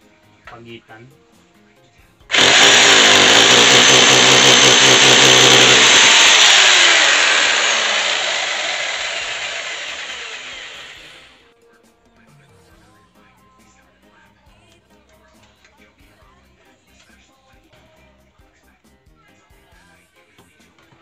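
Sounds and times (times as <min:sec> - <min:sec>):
hammer drill boring into brick: 0:02.3 - 0:11.3.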